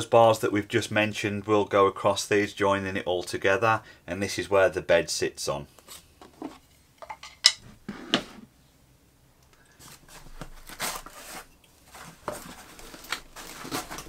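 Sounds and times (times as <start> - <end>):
foam packing rustling and scraping: 9.8 - 14.0.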